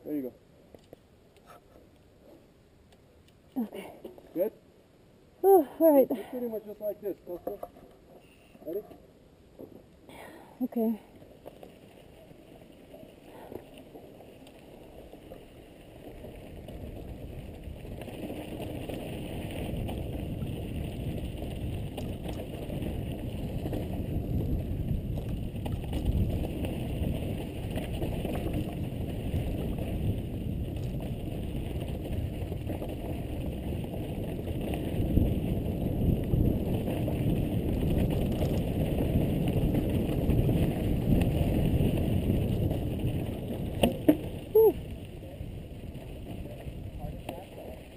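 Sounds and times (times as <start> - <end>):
bike tyres rolling on dirt: 5.8 - 47.9
wind on microphone: 16.9 - 47.8.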